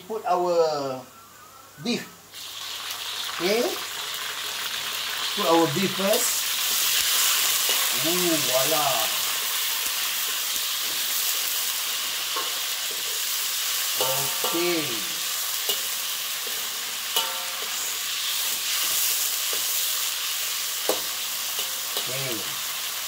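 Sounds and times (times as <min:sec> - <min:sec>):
food sizzling in hot oil: 0:02.2 - 0:23.0
metal spatula clinking on wok: 0:17.2 - 0:17.8.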